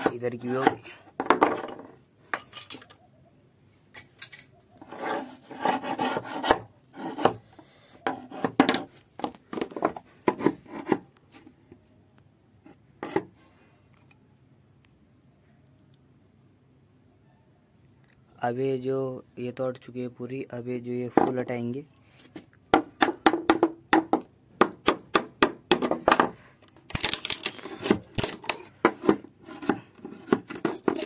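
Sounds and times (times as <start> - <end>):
chisel scraping wood: 4.8 - 11.1, 13.0 - 13.3, 27.7 - 31.0
knocks on wood: 22.7 - 26.3.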